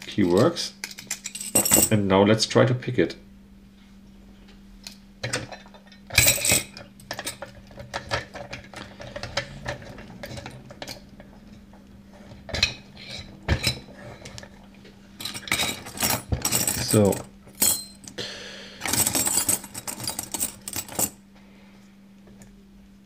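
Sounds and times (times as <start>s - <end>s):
metal clinks and knocks: 0.2s - 2.0s, 5.2s - 14.6s, 15.2s - 18.2s, 18.8s - 21.2s.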